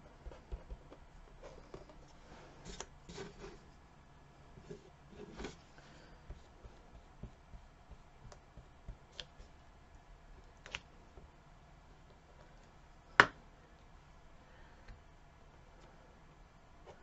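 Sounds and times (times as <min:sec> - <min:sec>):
paintbrush dabbing on paper: 0:06.2 - 0:09.5.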